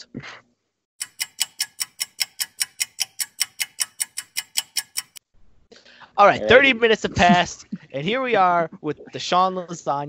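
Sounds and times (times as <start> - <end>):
fast clock ticking: 1.0 - 5.2.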